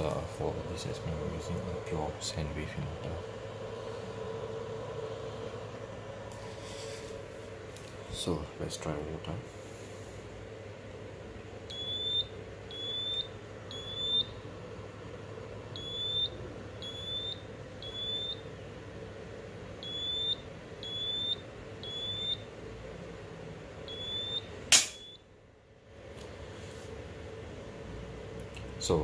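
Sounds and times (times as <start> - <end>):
smoke alarm beeping: 11.7 - 14.5, 15.7 - 18.6, 19.8 - 22.5, 23.8 - 25.3
circuit breaker snapping: 24.7 - 25.2.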